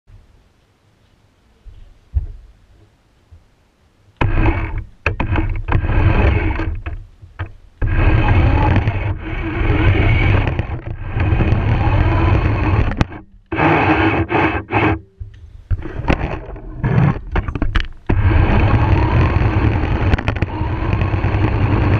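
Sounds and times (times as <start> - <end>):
radio-controlled car driving: 4.2 - 7.0, 7.8 - 15.0, 15.7 - 21.9
sharp clicks and knocks: 4.2 - 21.9.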